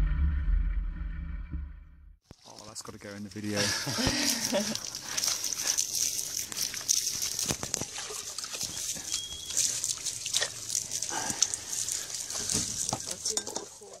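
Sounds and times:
water splashing: 2.3s - 14.0s.

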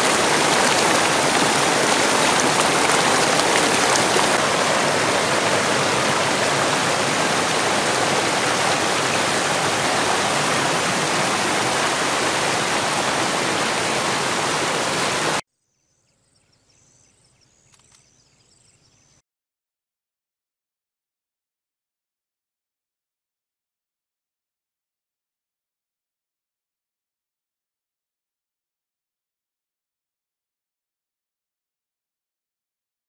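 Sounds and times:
stream rushing over rocks: 0.0s - 15.4s.

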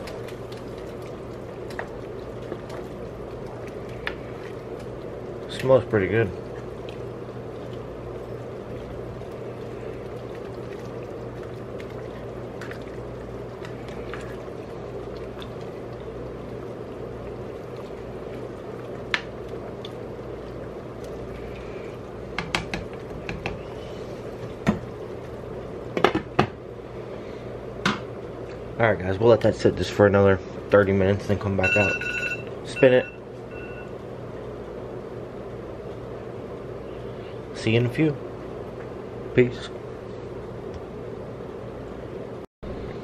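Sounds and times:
soup simmering and sloshing: 0.0s - 26.0s.

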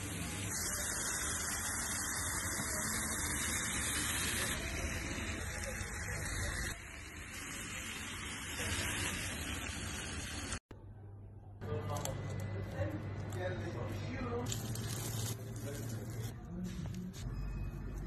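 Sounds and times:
meat sizzling on skillet: 0.0s - 10.6s.

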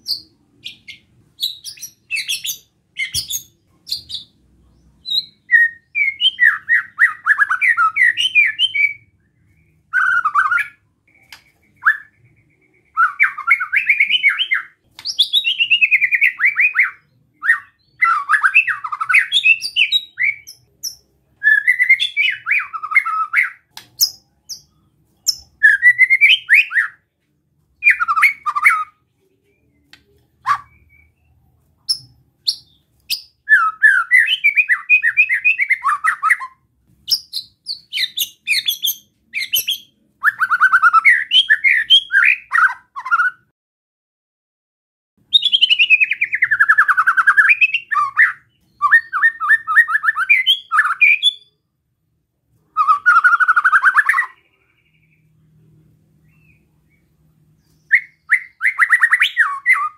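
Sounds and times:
bird singing rapid scratchy notes: 0.0s - 27.1s, 27.8s - 43.5s, 45.3s - 51.6s, 52.7s - 59.9s.

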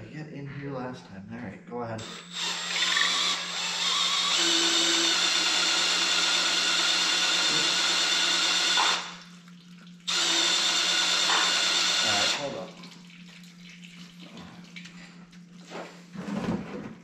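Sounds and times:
electric drill running: 2.0s - 9.2s, 10.1s - 12.6s.

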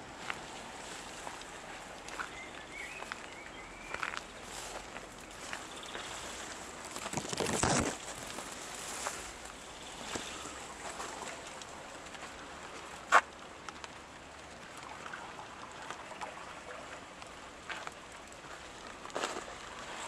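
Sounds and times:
low steady hiss: 0.0s - 20.0s
faint clicks: 13.1s - 14.9s.

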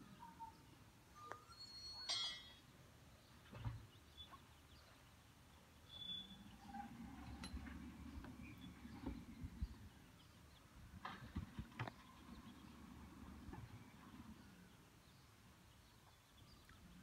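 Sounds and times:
low distant rumble: 6.5s - 15.2s.

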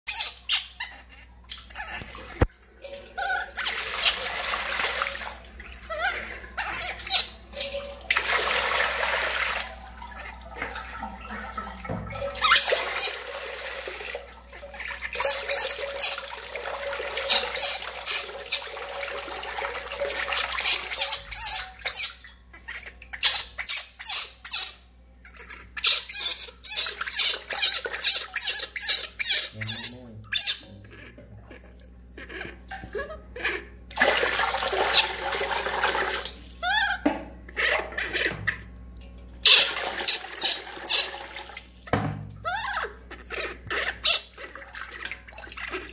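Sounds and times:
baby monkey crying: 0.1s - 2.1s, 5.9s - 7.4s, 15.1s - 16.3s, 17.2s - 18.7s, 20.6s - 24.8s, 25.4s - 33.7s, 36.6s - 37.0s, 39.4s - 41.2s, 42.5s - 44.5s
water splashing in steel basin: 1.6s - 22.3s, 33.9s - 36.6s, 37.6s - 42.4s, 43.6s - 45.9s.

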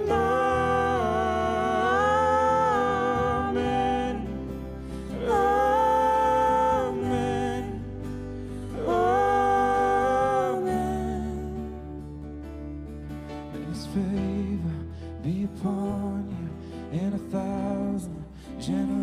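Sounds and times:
voices singing long notes: 0.0s - 11.7s
keyboard accompaniment: 0.0s - 19.0s.

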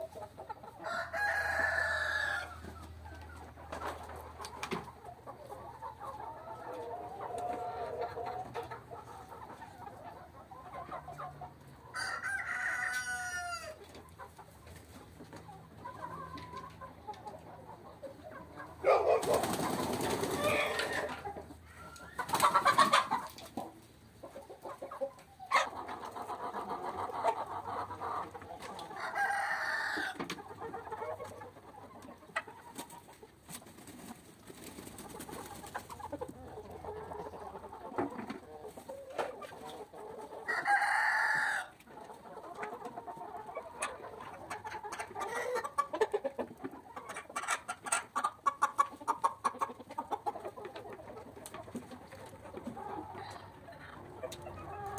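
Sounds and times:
chickens clucking: 0.0s - 54.9s
rooster crowing: 0.8s - 2.6s, 11.9s - 13.8s, 29.0s - 30.2s, 40.5s - 41.8s.

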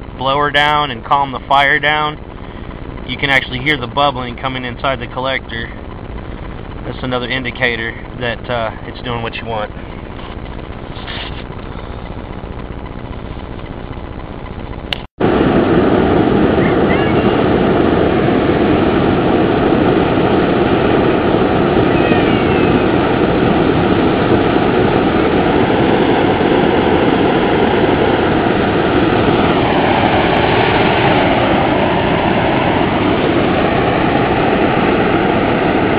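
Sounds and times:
air blower rushing hum: 0.0s - 35.9s
steady tone: 0.0s - 35.9s.

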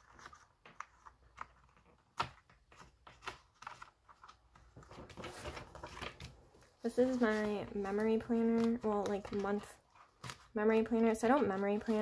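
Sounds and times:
paper rustling: 0.0s - 12.0s.

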